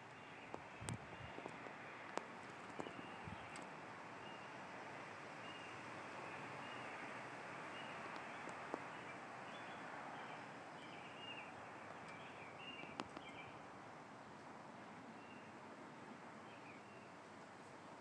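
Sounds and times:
small birds chirping: 0.0 - 13.7, 16.4 - 17.2.

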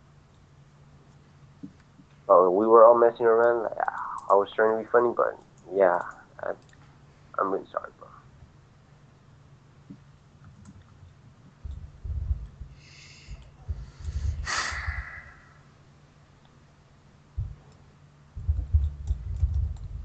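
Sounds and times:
person breathing: 12.7 - 15.7
person sighing: 14.2 - 15.6.

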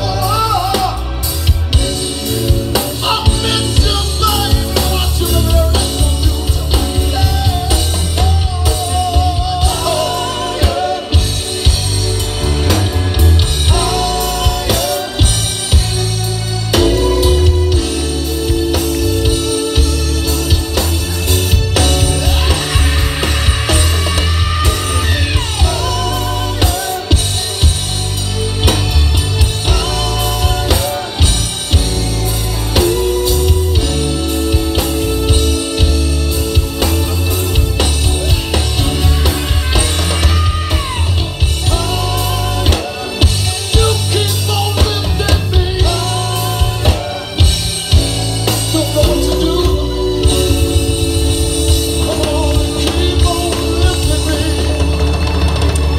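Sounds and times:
singer with vibrato: 0.0 - 11.9, 48.6 - 55.3
live rock band playing: 0.0 - 55.9.

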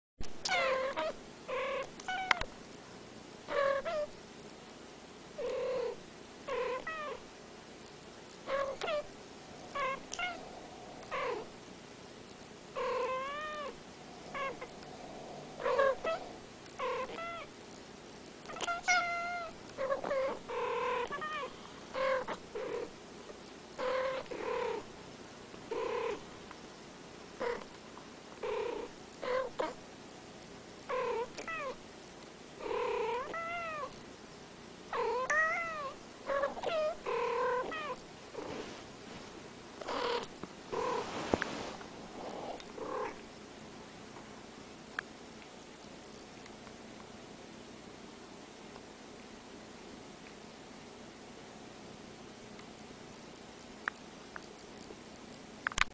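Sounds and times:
cats meowing: 9.7 - 11.5, 12.8 - 14.9, 15.5 - 17.5, 18.5 - 22.4, 35.0 - 38.0.

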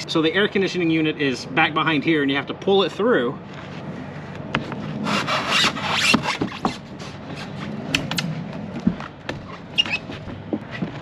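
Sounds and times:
air conditioner scraping through wood: 3.5 - 11.0.

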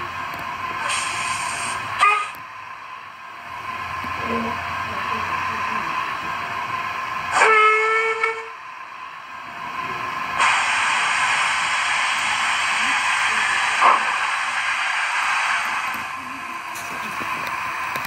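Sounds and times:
steam hissing: 0.0 - 18.0
steam locomotive whistle: 2.0 - 2.4, 7.3 - 8.5.

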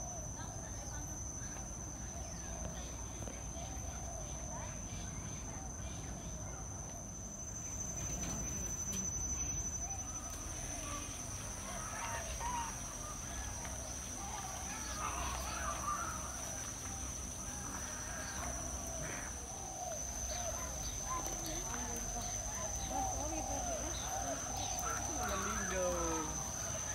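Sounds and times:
high-pitched insect drone: 0.0 - 26.9
bird calls: 7.9 - 26.9.

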